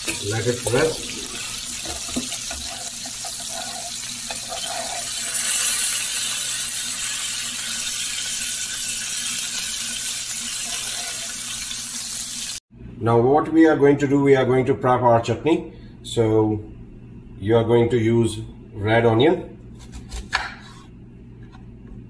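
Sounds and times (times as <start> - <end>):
steaks sizzling in a frying pan: 0.0 - 12.6.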